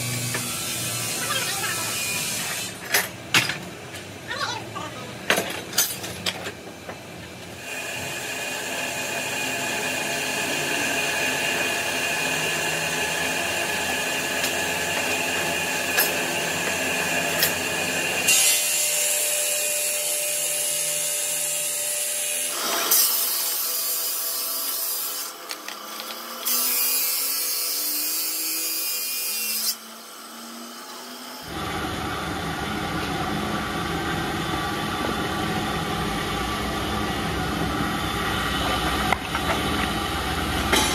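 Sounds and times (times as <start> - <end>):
stone-cutting saw grinding whine: 0.0 - 2.8, 7.6 - 40.9.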